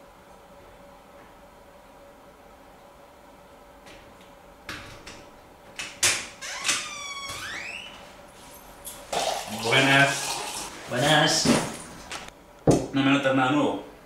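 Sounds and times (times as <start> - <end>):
creaking door hinge: 6.0 - 8.0.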